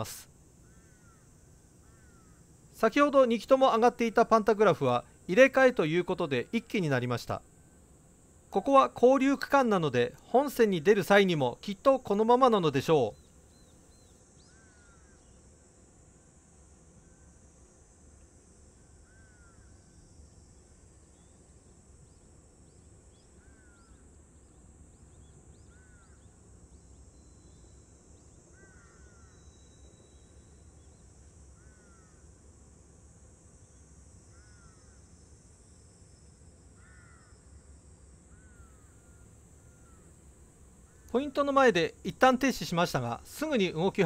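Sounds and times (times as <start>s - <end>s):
bird calling: 0.0s - 7.8s, 38.3s - 40.2s
faint steady high hiss: 0.0s - 44.0s.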